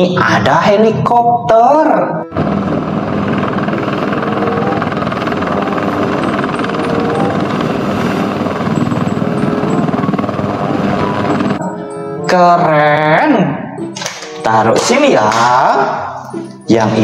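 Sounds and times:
helicopter engine noise: 2.2s - 11.6s
helicopter rotor chopping: 2.2s - 11.6s.

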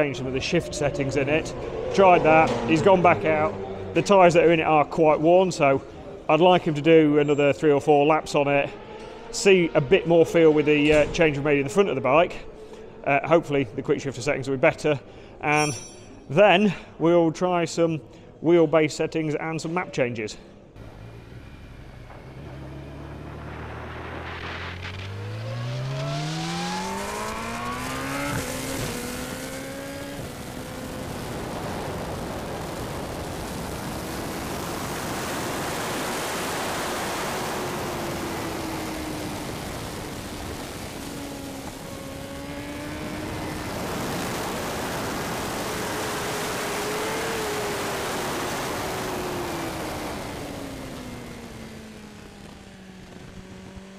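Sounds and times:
motorcycle engine accelerating: 0.0s - 4.3s, 20.8s - 53.9s.

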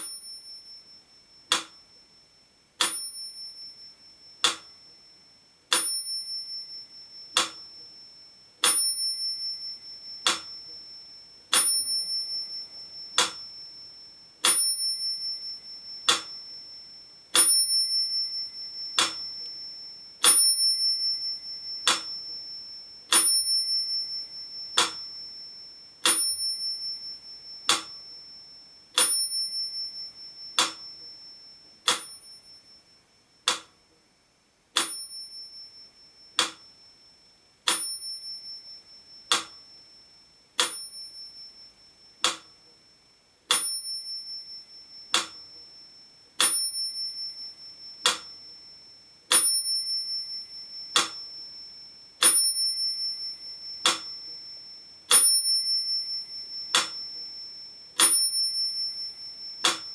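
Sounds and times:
metronome bell ringing: 0.0s - 33.5s, 34.8s - 59.9s
metronome ticking: 1.5s - 1.9s, 4.3s - 4.8s, 7.1s - 8.0s, 8.6s - 10.9s, 11.5s - 13.7s, 14.4s - 16.7s, 17.4s - 22.4s, 23.1s - 28.2s, 29.0s - 32.4s, 33.4s - 33.8s, 34.8s - 35.4s, 36.3s - 36.8s, 39.3s - 39.7s, 40.6s - 41.6s, 42.2s - 42.6s, 43.5s - 45.8s, 46.4s - 48.4s, 49.3s - 54.5s, 55.1s - 57.4s, 58.0s - 59.9s.

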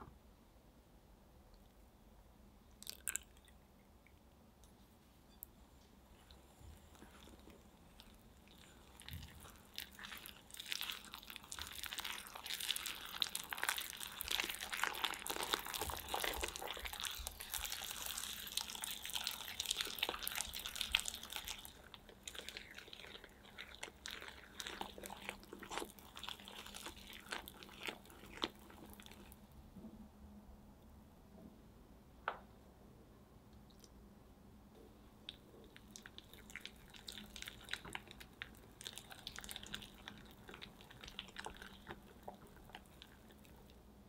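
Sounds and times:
wet squish of batter: 2.7s - 5.5s, 6.1s - 29.5s, 35.1s - 43.9s.

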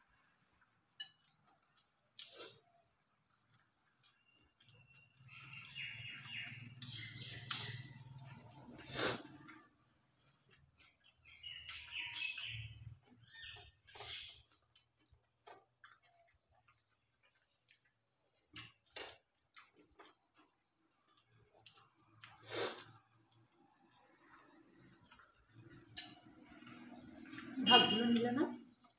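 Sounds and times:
chewing: 0.1s - 28.9s
fingers mixing food on plates: 0.3s - 28.9s.

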